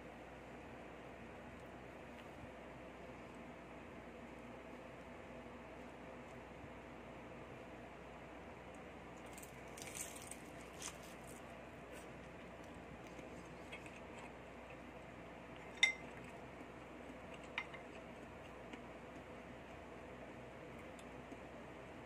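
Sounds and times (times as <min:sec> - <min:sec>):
metal spoon clinking on bowl: 0:15.7 - 0:16.1.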